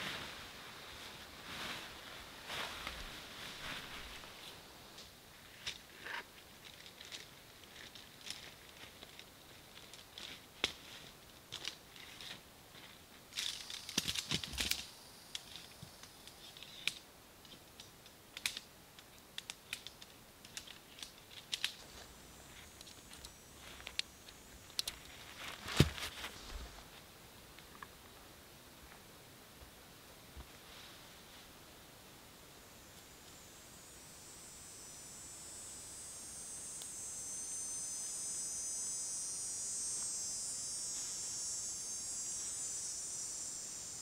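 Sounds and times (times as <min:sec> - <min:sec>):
tent pole sections clicking together: 0:16.5 - 0:21.8.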